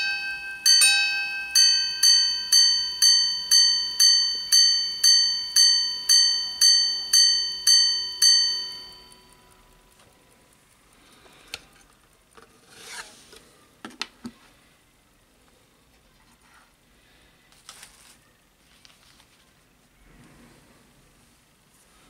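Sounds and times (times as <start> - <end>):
pocket watch striking a gong: 0.0 - 9.5.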